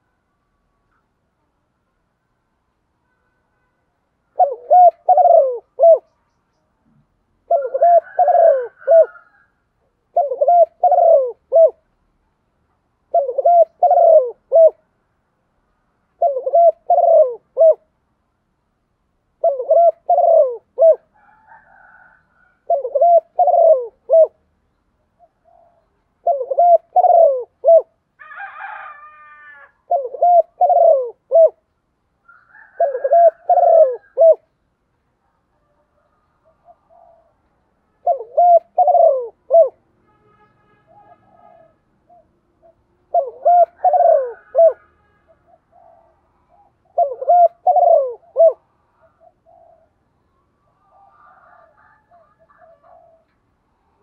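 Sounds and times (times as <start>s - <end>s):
dove cooing: 4.4s - 6.1s, 7.4s - 11.9s, 13.1s - 14.8s, 16.2s - 17.9s, 19.4s - 24.4s, 25.2s - 31.6s, 32.3s - 34.5s, 36.0s - 39.8s, 40.9s - 53.5s
high bird call: 40.9s - 49.9s.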